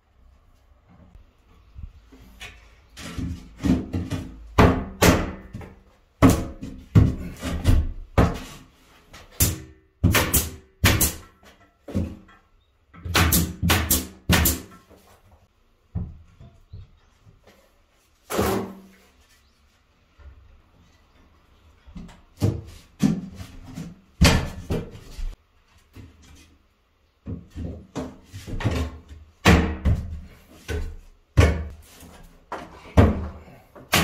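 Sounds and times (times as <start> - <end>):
nail gun firing into wood: 9.4 - 11.2, 13.1 - 14.7.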